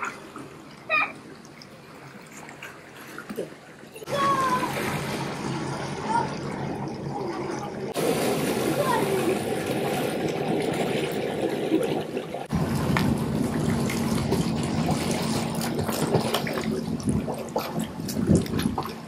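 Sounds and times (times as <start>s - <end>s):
churning rushing pool water: 0.0s - 19.0s
swimmers splashing: 7.3s - 18.0s
steady low hum: 12.4s - 18.4s.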